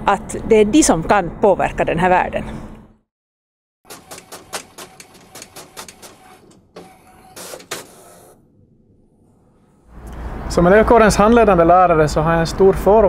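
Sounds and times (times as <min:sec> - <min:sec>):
printer clicking and whirring: 0:03.9 - 0:08.3.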